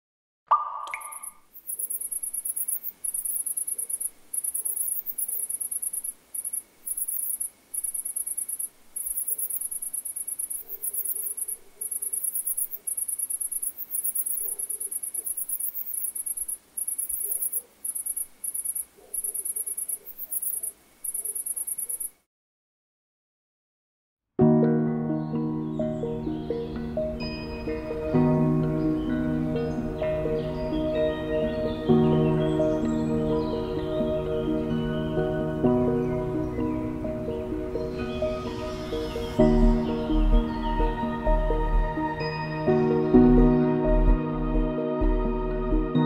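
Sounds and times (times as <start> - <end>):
insect chirping in trills: 0.8 - 22.2.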